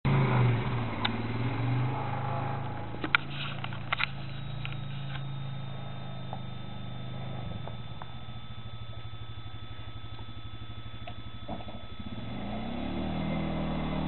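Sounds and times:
atv engine running: 0:00.1 - 0:14.0.

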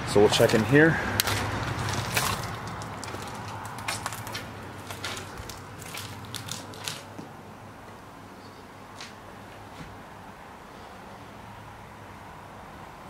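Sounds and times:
footsteps crunching on glass: 0:01.2 - 0:07.3.

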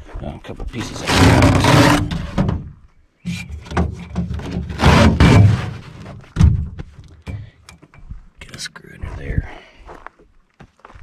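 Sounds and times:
carpet scraping across floor: 0:00.8 - 0:02.4.

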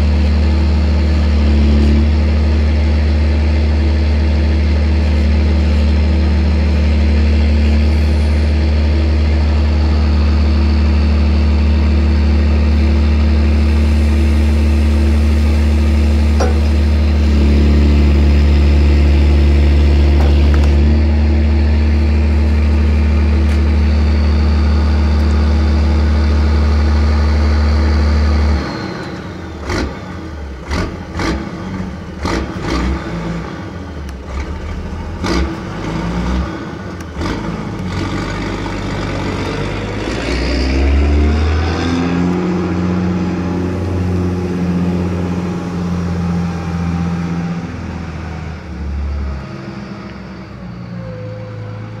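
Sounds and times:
diesel engine running: 0:00.0 - 0:52.0
sharp knocks: 0:16.4 - 0:16.9.

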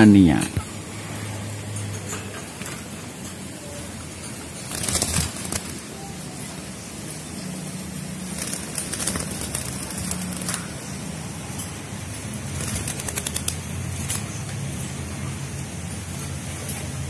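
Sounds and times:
doves flapping wings in cage: 0:02.0 - 0:06.7, 0:07.3 - 0:15.0.

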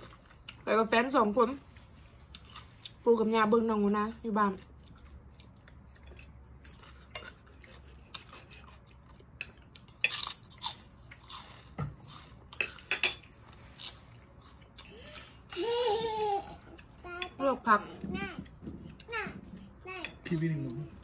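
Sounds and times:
chewing crunchy food: 0:01.6 - 0:03.0, 0:04.6 - 0:15.4.

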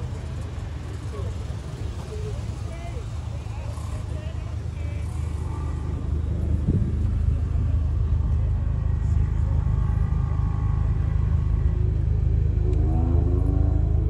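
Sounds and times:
deep subwoofer bass rumble: 0:04.4 - 0:14.0.

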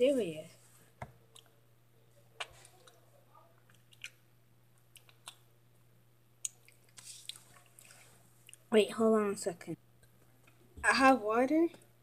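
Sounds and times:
chewing crunchy snacks: 0:03.6 - 0:04.2, 0:04.8 - 0:05.4, 0:06.4 - 0:08.7.

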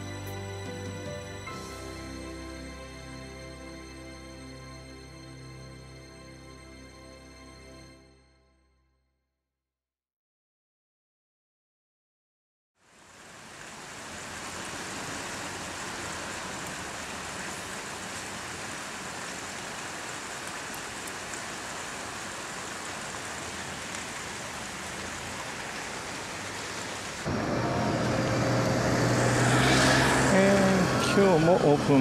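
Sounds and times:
heavy rain: 0:12.8 - 0:32.0
street noise: 0:13.4 - 0:32.0
low hum: 0:27.3 - 0:31.2.

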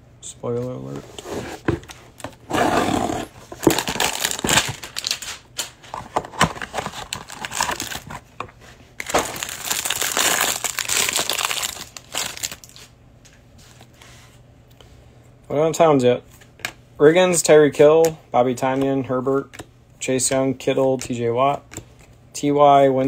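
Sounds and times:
cardboard packaging handled: 0:01.2 - 0:08.2, 0:09.0 - 0:12.8
plastic wrapper crinkling: 0:03.6 - 0:05.7, 0:06.3 - 0:08.2, 0:09.0 - 0:12.9.

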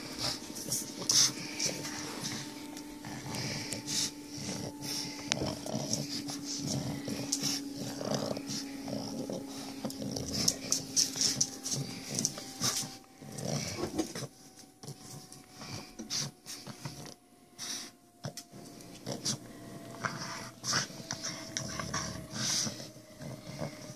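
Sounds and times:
dogs playing: 0:00.0 - 0:23.9.

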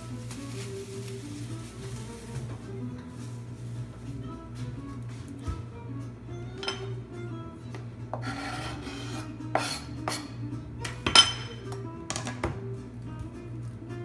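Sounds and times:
background music: 0:00.0 - 0:14.0
knife scraping cutting board: 0:08.1 - 0:10.4.

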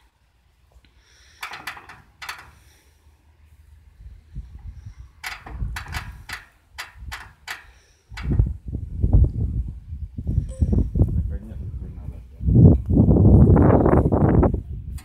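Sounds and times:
sharp metallic clicks and knocks: 0:01.4 - 0:02.6, 0:05.2 - 0:08.4.

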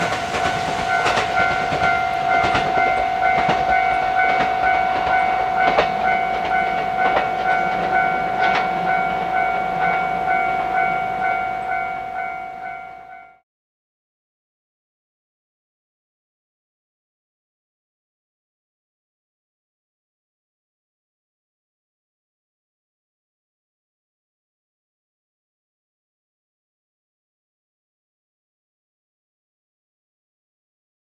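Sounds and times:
rail joint clacks: 0:00.0 - 0:13.4
train running noise: 0:00.0 - 0:13.4.

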